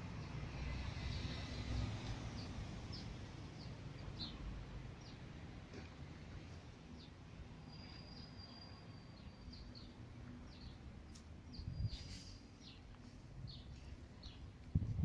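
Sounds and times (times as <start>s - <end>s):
small birds chirping: 2.3s - 5.3s, 6.9s - 14.6s.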